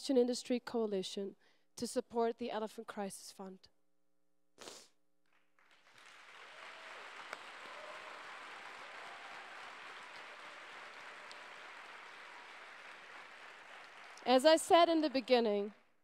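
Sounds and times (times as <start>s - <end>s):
audience applauding: 5.6s - 15.8s.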